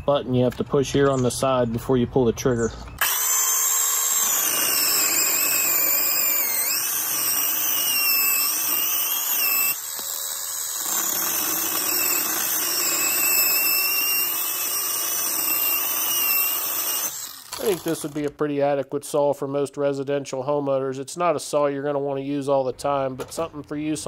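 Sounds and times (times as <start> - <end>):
chainsaw cutting through log: 3.0 - 18.3.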